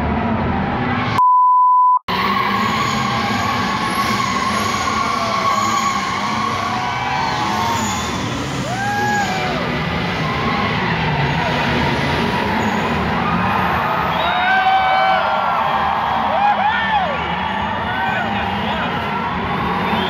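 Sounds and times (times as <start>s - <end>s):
car engines roaring: 0.0s - 1.2s, 2.1s - 20.0s
steady beep tone: 1.2s - 2.0s
tyres squealing: 2.1s - 14.2s.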